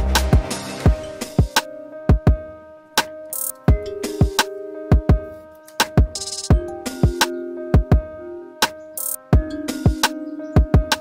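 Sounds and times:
held keyboard notes: 0.0s - 11.0s
snare or hi-hat hits: 5.8s - 6.6s.

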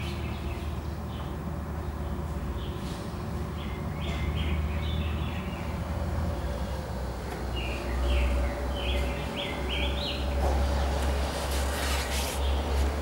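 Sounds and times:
bird chirping: 3.5s - 5.8s, 7.5s - 11.0s.

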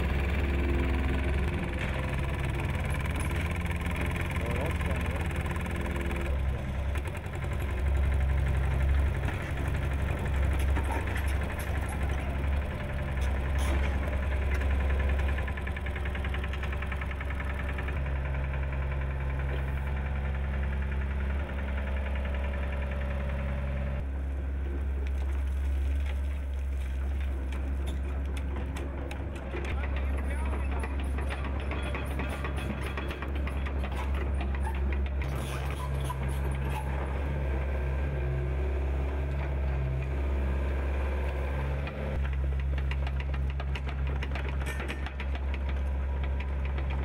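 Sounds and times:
vibratory plate compactor: 0.0s - 24.0s, 27.7s - 37.4s
excavator diesel engine: 0.0s - 47.0s.

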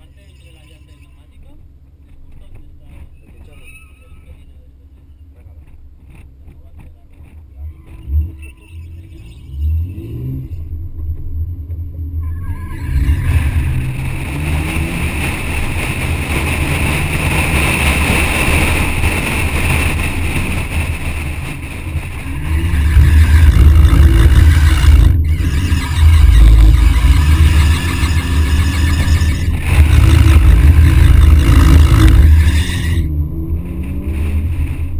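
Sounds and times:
car engine accelerating: 0.0s - 34.9s
wind rush: 12.8s - 34.9s.

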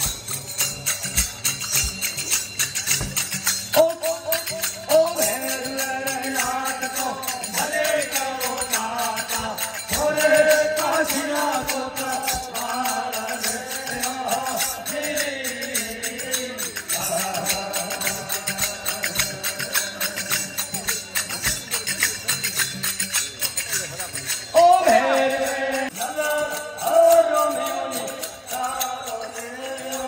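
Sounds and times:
jingling hand clappers: 0.0s - 30.0s
small hand cymbals: 0.0s - 30.0s
men singing: 3.8s - 20.6s, 24.6s - 30.0s.

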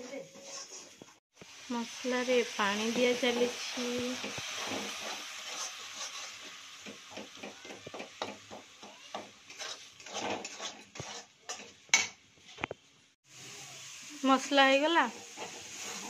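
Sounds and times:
spoon scraping cooking pan: 0.0s - 1.2s, 2.9s - 12.9s, 15.0s - 16.0s
paste sizzling: 0.0s - 16.0s.

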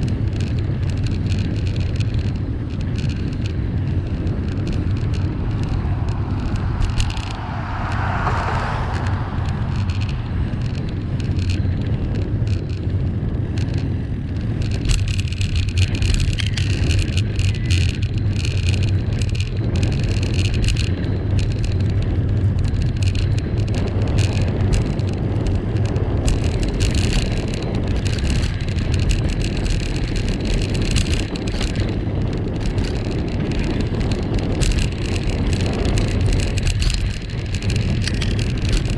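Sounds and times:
bicycle tyre road noise: 0.0s - 38.9s
crackly rattle: 0.0s - 38.9s
wind rumble on microphone: 0.0s - 38.9s.

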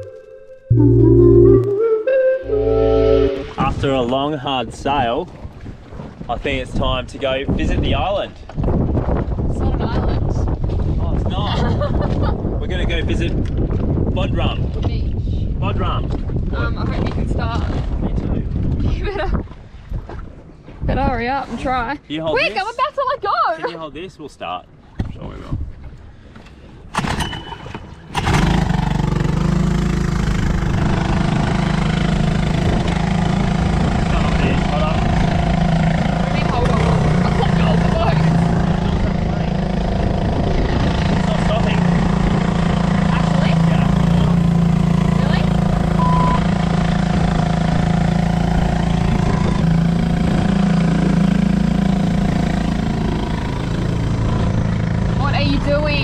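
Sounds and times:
outboard motor starting and idling: 27.0s - 56.0s
boat engine running: 28.2s - 56.0s.

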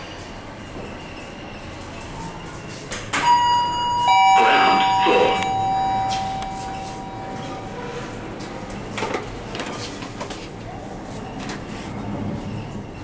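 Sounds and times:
two-note lift chime: 3.3s - 7.8s.

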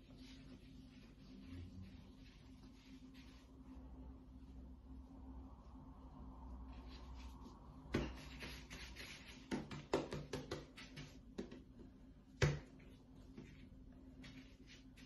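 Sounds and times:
hands patting dough: 6.9s - 15.0s.

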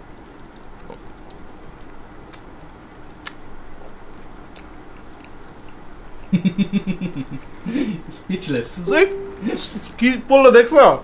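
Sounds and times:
food crunching: 0.0s - 6.3s
chewing fried chicken: 0.0s - 7.9s.

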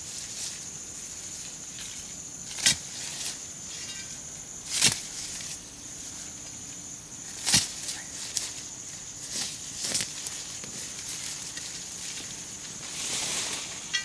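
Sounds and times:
metal bar striking soil: 13.8s - 14.0s.

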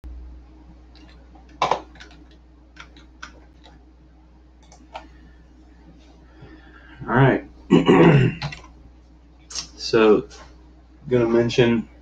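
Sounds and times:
steady low hum: 0.0s - 12.0s
clicks and light taps: 0.9s - 3.8s, 4.6s - 5.2s, 8.4s - 9.2s.

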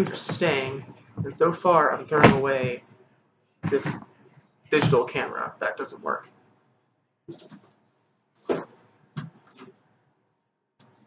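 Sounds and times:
objects knocking and rustling: 7.3s - 7.8s, 8.4s - 9.8s.

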